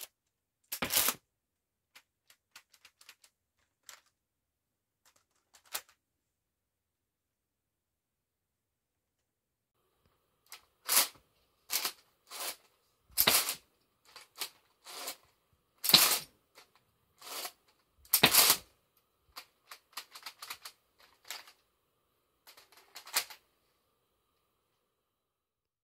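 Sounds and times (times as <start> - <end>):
plastic toy mechanism clacking: 19.4 - 21.6, 22.5 - 23.4.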